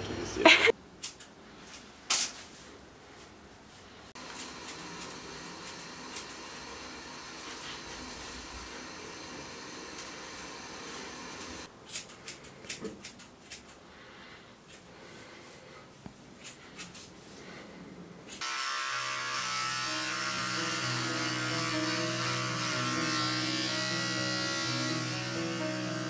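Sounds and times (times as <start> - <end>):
scissors snipping hair: 11.9 - 13.8
music: 19.7 - 26.0.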